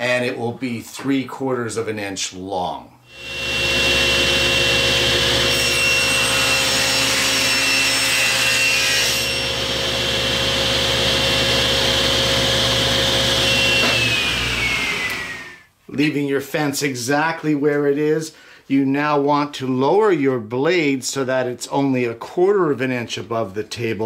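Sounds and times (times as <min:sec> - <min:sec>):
saw blade whine spinning down: 0:03.1 - 0:06.2, 0:09.3 - 0:15.6
table saw cutting plastic: 0:03.1 - 0:15.7.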